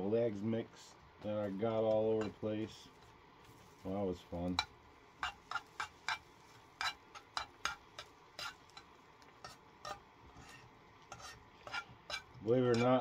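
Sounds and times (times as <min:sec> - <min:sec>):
metal utensil scraping frying pan: 0:02.1 - 0:02.5, 0:04.6 - 0:13.0.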